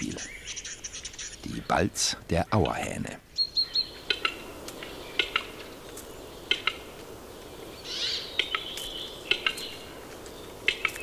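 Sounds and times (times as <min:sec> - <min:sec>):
bird sharp clicks: 0:08.4 - 0:11.0.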